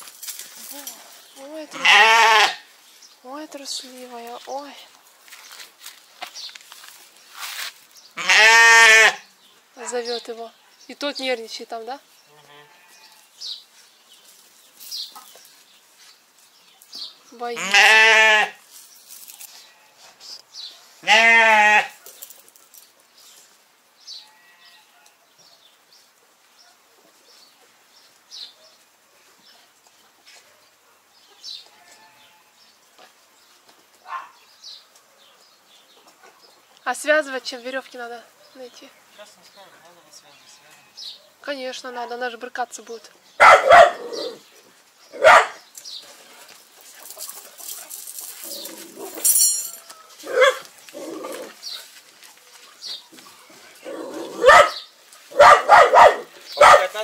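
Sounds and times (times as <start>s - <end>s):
small birds chirping: 0.0s - 57.0s
dog barking: 34.0s - 34.4s, 43.4s - 44.4s, 45.2s - 45.6s, 50.3s - 50.7s, 54.3s - 57.0s.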